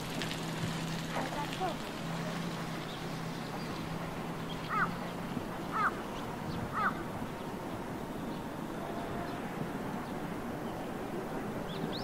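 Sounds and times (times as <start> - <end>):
crow cawing: 4.7 - 5.0, 5.7 - 6.0, 6.7 - 7.0.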